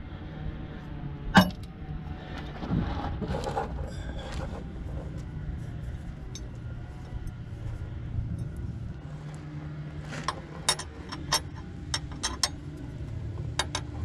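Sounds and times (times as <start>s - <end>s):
low steady hum: 0.0s - 14.0s
gravel scraping and crunching: 2.2s - 11.1s.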